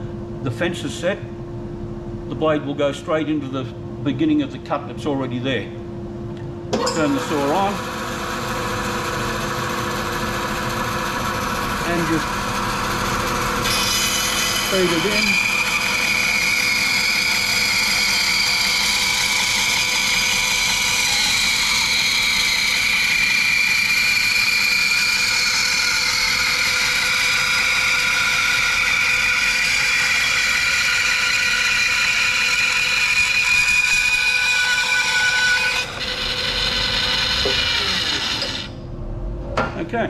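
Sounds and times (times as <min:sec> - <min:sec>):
bandsaw cutting wood: 0:07.1 - 0:38.7.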